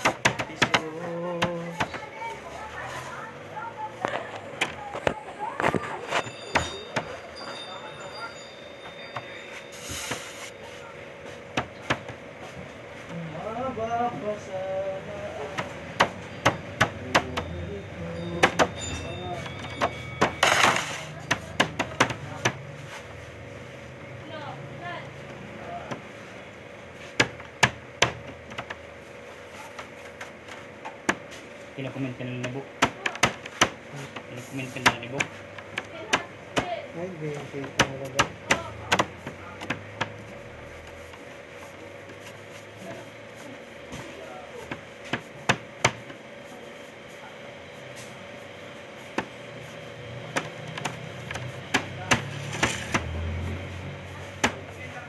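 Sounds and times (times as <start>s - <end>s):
dough knocking on worktable: 0.0s - 2.0s, 15.4s - 17.5s, 19.8s - 22.6s, 27.2s - 28.8s, 32.4s - 36.8s, 37.6s - 40.2s, 44.6s - 46.2s, 50.3s - 53.2s.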